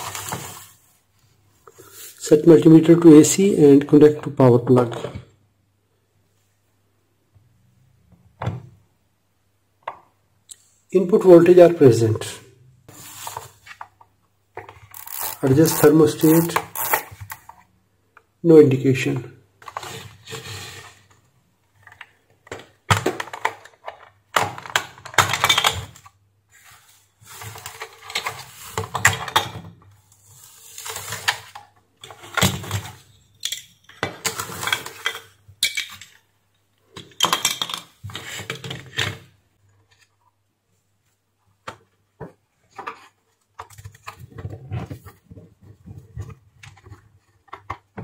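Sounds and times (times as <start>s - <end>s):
plastic parts clicking and scraping: 13.2s - 18.3s, 19.6s - 36.3s, 41.6s - 48.0s.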